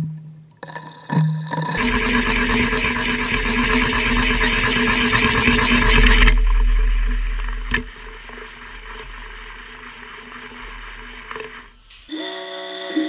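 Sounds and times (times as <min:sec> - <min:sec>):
spindle motor humming: 0:00.6 - 0:13.0
cutter grinding metal: 0:10.9 - 0:13.0.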